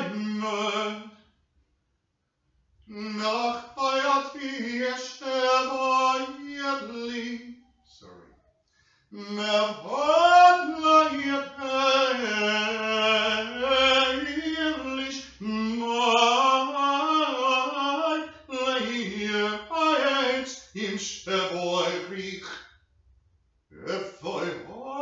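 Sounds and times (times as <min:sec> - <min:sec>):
man singing solo: 0:00.0 - 0:01.1, 0:09.1 - 0:22.5, 0:23.8 - 0:25.0.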